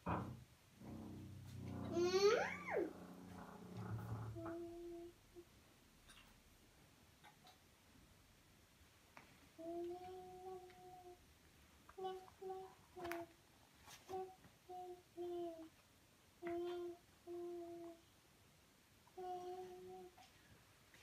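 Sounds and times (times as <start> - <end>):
child humming: 1.8 - 2.9, 4.4 - 5.2, 9.6 - 11.2, 12.0 - 13.3, 14.1 - 15.7, 16.4 - 18.0, 19.2 - 20.2.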